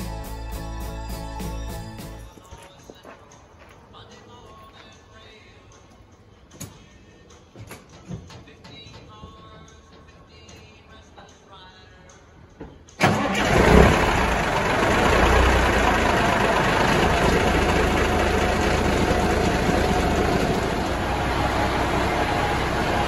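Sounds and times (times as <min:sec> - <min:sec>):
diesel engine starting and idling: 0:13.0 - 0:23.0.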